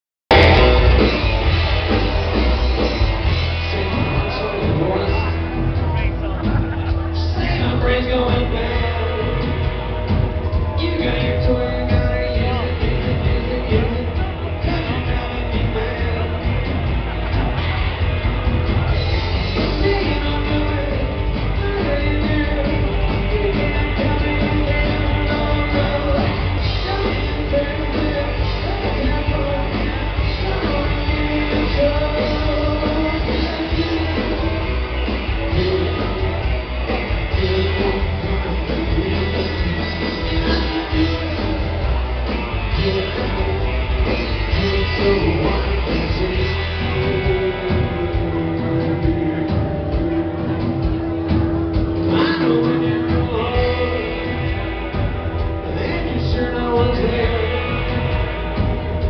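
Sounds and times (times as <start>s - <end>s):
drums: 0.3s - 59.0s
electric guitar: 0.3s - 59.0s
live rockabilly band: 0.3s - 59.0s
upright bass: 0.3s - 59.0s
man singing: 2.0s - 17.6s, 18.8s - 59.0s.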